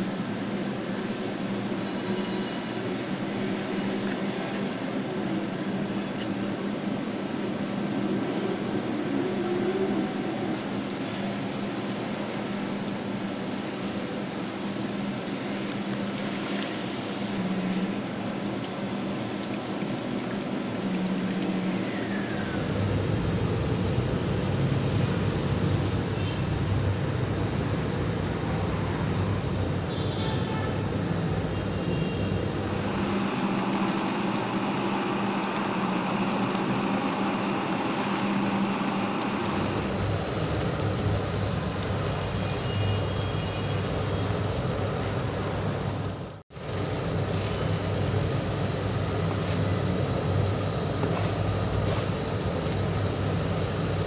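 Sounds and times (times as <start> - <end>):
rumbling background noise: 32.4 - 54.0.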